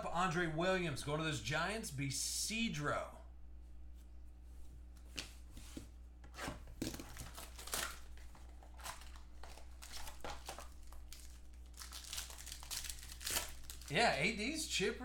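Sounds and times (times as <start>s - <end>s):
low electrical hum: 0.0s - 15.0s
plastic wrapping crinkling and tearing: 6.8s - 14.1s.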